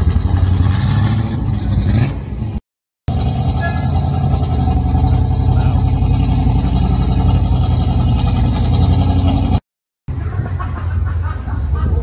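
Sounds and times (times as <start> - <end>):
car engine idling: 3.1 - 9.6.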